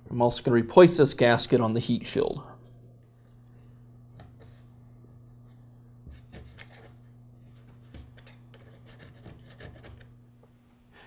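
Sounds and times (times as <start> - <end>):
low steady hum: 0.0 - 11.0
razor blade scraping metal: 8.2 - 10.1.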